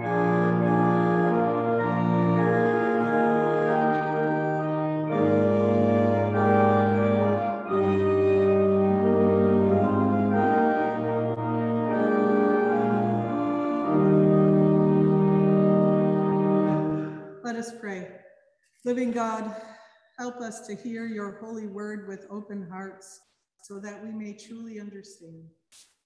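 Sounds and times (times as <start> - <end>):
pipe organ playing chords: 0.0 - 17.3.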